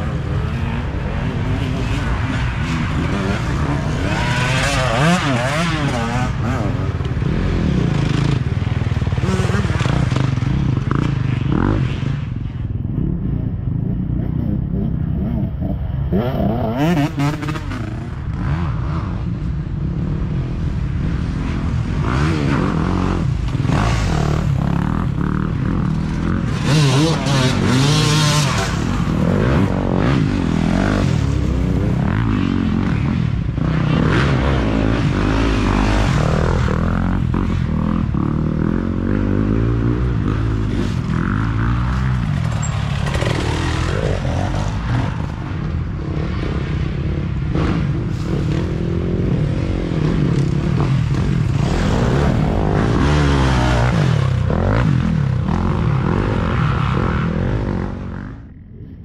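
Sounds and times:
dirt bike engines revving: 0.0s - 59.0s.

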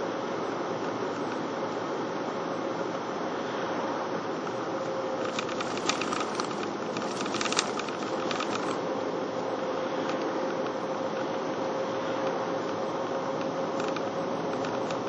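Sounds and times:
car road and engine noise: 0.0s - 15.0s
faint steady hum: 0.0s - 15.0s
light rattling clicks: 4.4s - 8.8s.

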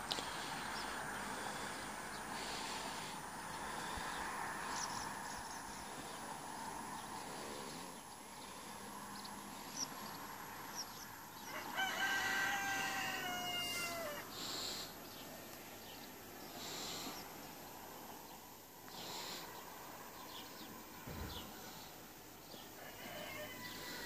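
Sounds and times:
rooster crowing: 11.4s - 14.4s, 22.5s - 24.0s.

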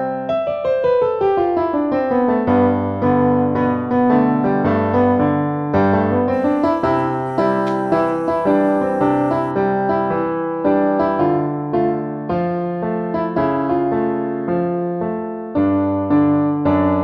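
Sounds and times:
piano music: 6.2s - 9.6s.

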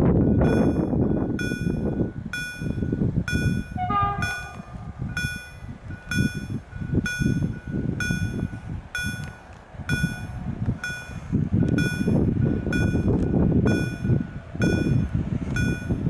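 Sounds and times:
low rumble: 0.0s - 16.0s
level crossing bell ringing: 0.4s - 9.3s.

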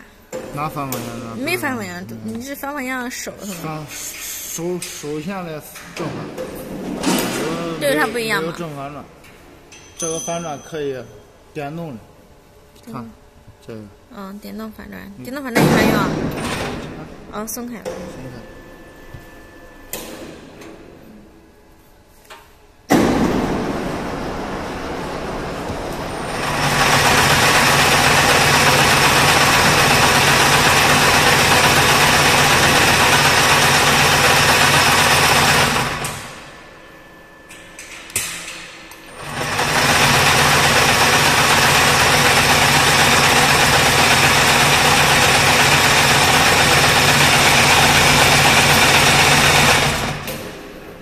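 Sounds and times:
low hum: 14.7s - 21.9s, 22.9s - 33.5s, 34.1s - 39.6s
braiding machine running: 15.6s - 21.0s, 22.9s - 51.0s.

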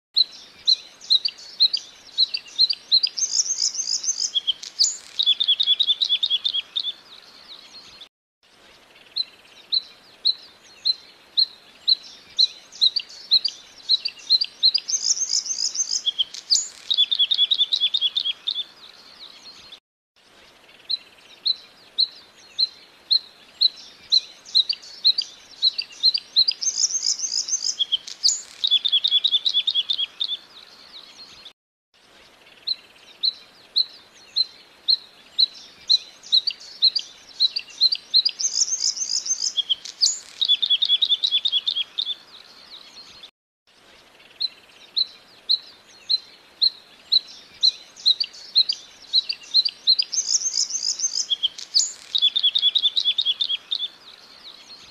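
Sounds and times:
bird singing ringing notes and trills: 0.2s - 54.9s.

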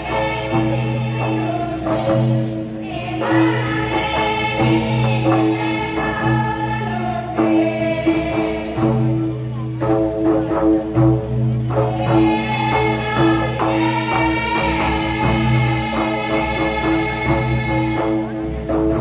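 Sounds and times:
barrel drums beating: 0.0s - 19.0s
group singing folk song: 0.0s - 19.0s.

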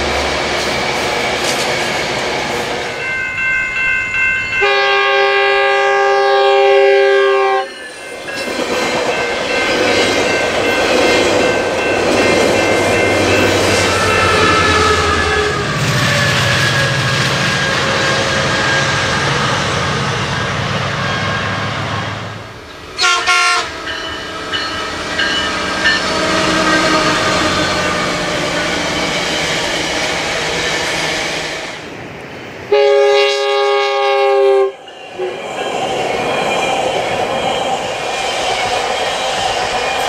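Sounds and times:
train coaches clacking over rails: 0.0s - 5.6s, 7.3s - 21.9s, 22.5s - 32.7s, 34.5s - 40.0s
locomotive air horn: 4.6s - 7.7s, 13.9s - 17.2s, 23.0s - 23.9s, 32.7s - 34.8s.

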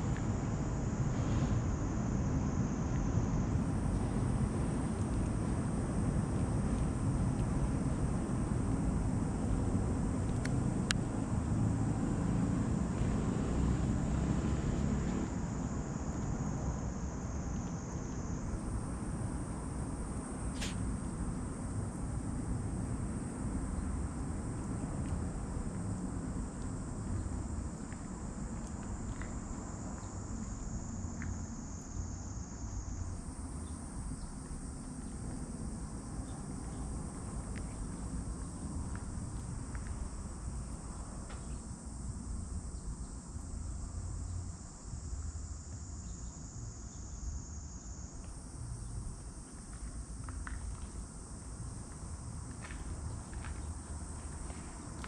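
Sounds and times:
insect trilling: 20.5s - 20.8s.

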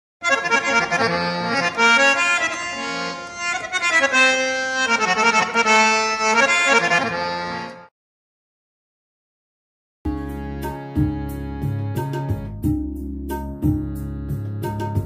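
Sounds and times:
harmonium melody: 0.2s - 7.9s, 10.1s - 12.8s, 13.6s - 15.0s.

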